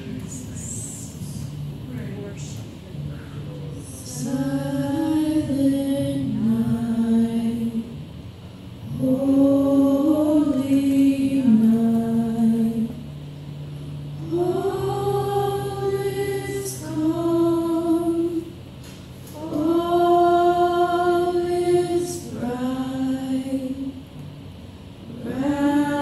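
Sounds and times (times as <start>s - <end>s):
church choir singing: 3.8s - 8.0s, 8.8s - 13.0s, 14.2s - 18.6s, 19.3s - 24.0s, 25.1s - 26.0s.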